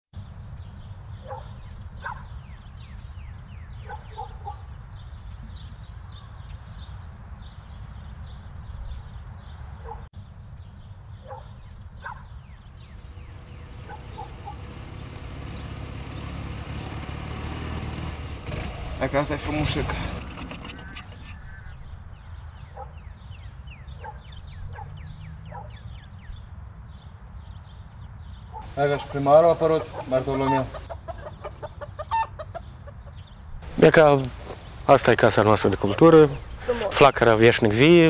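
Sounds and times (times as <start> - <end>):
farmyard fowl calling: 28.6 - 37.2.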